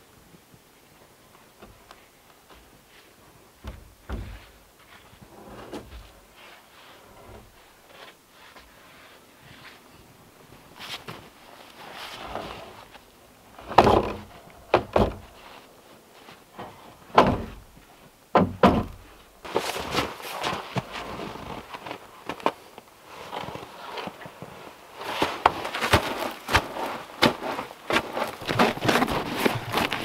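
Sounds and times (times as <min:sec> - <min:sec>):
wooden thuds of logs: 0:03.6 - 0:04.6, 0:13.6 - 0:15.4, 0:16.6 - 0:19.2
footsteps crunching in snow: 0:19.4 - 0:30.0.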